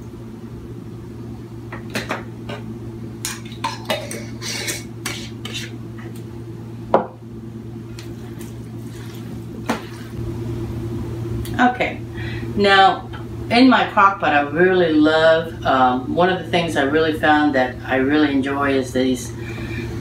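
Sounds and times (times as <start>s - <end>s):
hands mixing meat: 7.9s - 10.2s.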